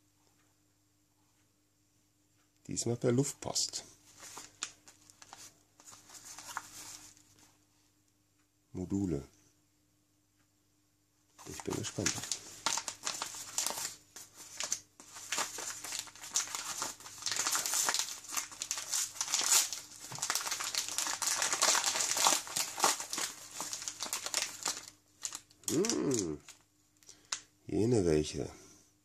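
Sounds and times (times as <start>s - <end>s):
envelope tearing open: 11.4s - 26.6s
plastic bags rustling: 11.4s - 26.6s.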